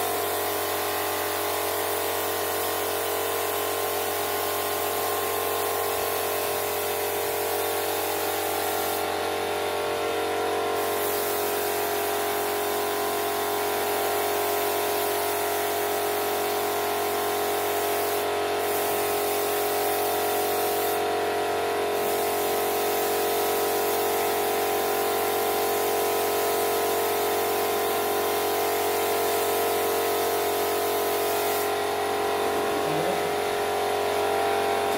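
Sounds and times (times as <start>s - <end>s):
air compressor hum: 0.0s - 34.9s
spray gun hissing: 0.2s - 9.1s, 10.8s - 21.1s, 22.0s - 26.9s, 27.6s - 31.8s.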